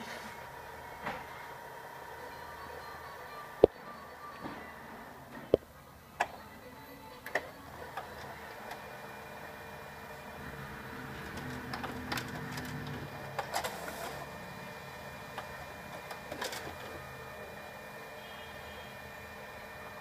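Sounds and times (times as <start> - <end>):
printer mechanical hum: 0.0 - 20.0
paper mechanism clicks and rattles: 11.2 - 13.8.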